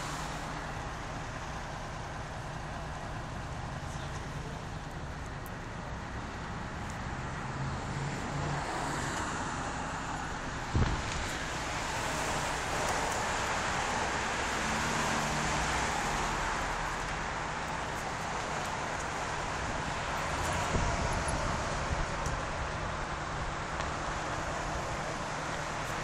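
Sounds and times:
engine idling: 0.0 - 7.0
street traffic: 0.0 - 26.0.

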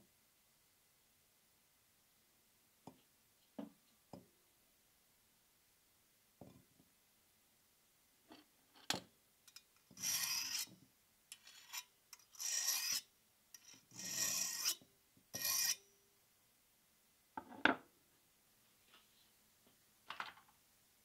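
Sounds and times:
file rasping across steel blade: 9.9 - 10.7, 11.3 - 14.8, 15.4 - 15.8.

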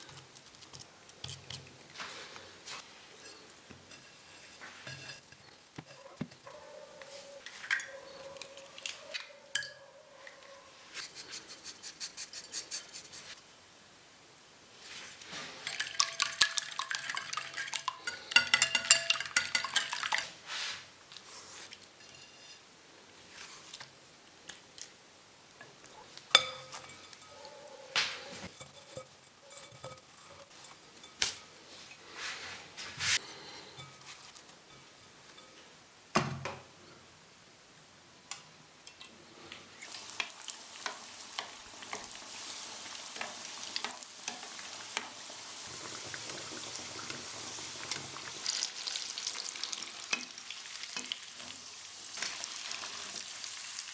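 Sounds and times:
handling noises: 0.0 - 11.4
whisk clinking against bowl: 15.6 - 20.3, 26.3 - 27.3.

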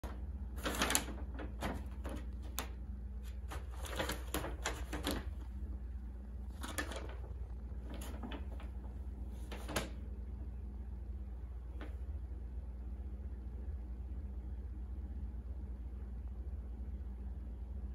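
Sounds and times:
paper bag crinkling and rustling: 0.0 - 5.6, 6.4 - 10.0.

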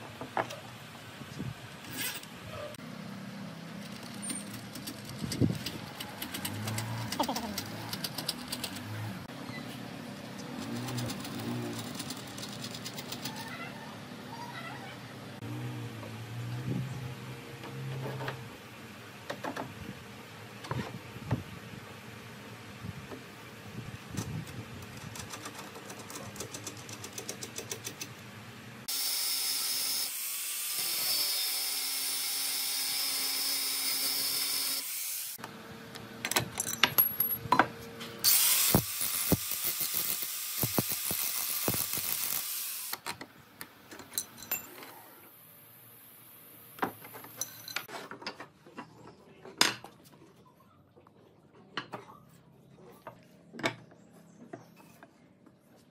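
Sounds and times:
clicks and knocks of handled parts: 3.8 - 9.0, 35.4 - 37.7
hand-held power tool running: 28.9 - 35.4, 38.2 - 43.0.

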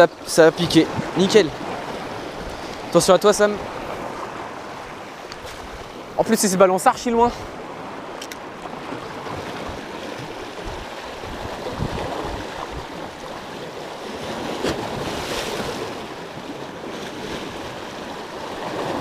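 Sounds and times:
waves splashing over rocks: 0.0 - 19.0
wind noise: 8.2 - 13.4.

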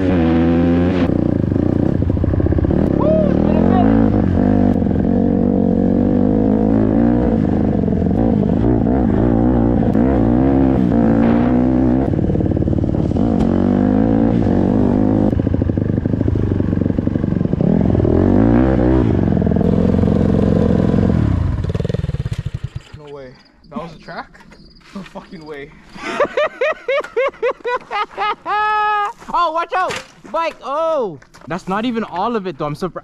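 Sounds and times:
dirt bike engine revving: 0.0 - 23.1.

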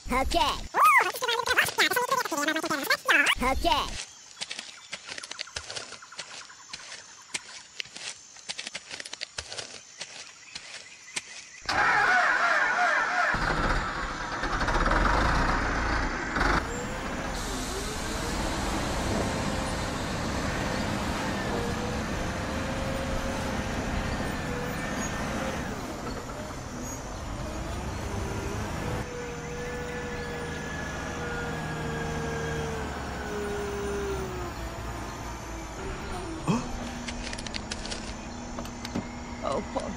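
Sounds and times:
heavy vehicle engine rumbling: 13.4 - 39.9.

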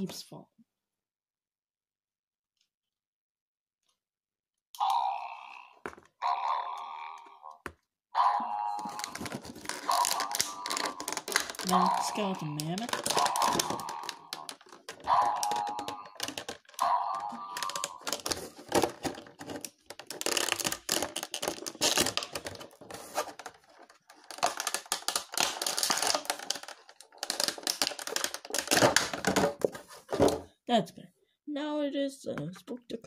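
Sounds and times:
small plastic pieces clattering: 8.8 - 30.4.

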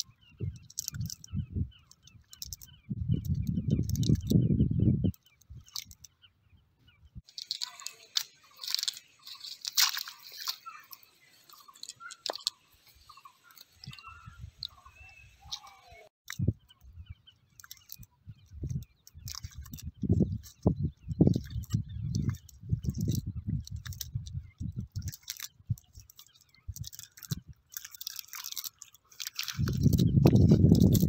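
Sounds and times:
wet net crunching and crackling: 0.6 - 2.7, 3.8 - 4.4, 5.2 - 6.1, 7.2 - 14.8, 17.5 - 31.0.

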